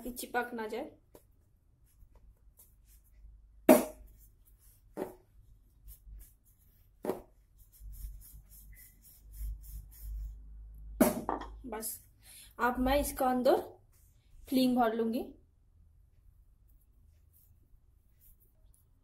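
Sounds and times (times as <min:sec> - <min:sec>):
rolling pin rolling dough: 0:01.1 - 0:10.4.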